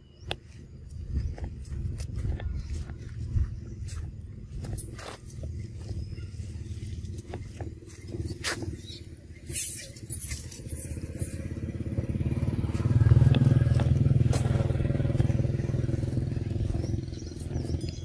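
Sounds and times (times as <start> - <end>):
vehicle engine running: 0.0 - 18.0
dry leaves crackling: 9.5 - 17.8.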